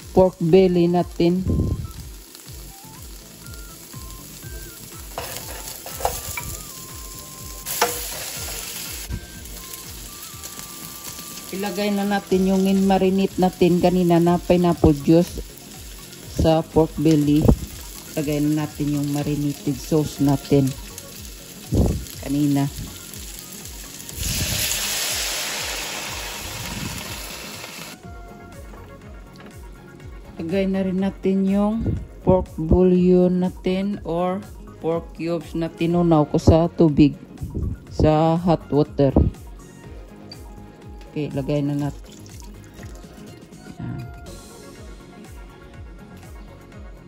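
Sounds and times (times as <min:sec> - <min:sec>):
food sizzling in oil: 0:00.0 - 0:28.1, 0:40.2 - 0:43.6.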